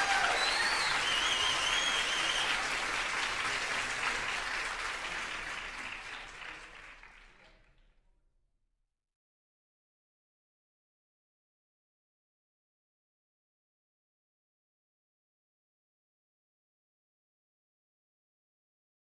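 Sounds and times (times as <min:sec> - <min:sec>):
high whoops: 0:00.0 - 0:02.6
crowd applauding and cheering: 0:00.0 - 0:07.8.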